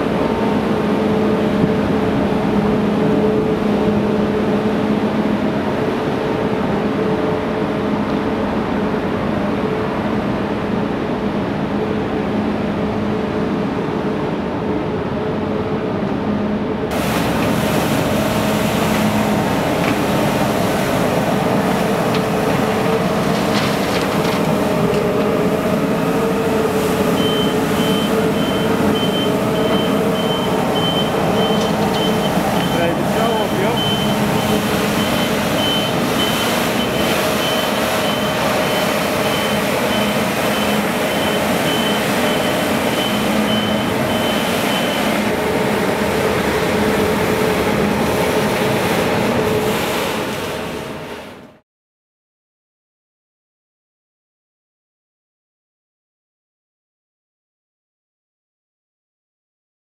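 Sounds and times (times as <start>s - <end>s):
diesel engines idling: 16.9s - 49.5s
sweeper brushes scraping road: 17.0s - 51.3s
reversing beeper: 27.2s - 45.2s.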